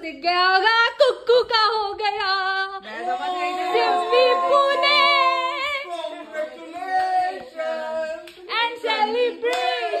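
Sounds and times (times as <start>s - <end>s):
people cheering in sing-song: 2.9s - 8.2s.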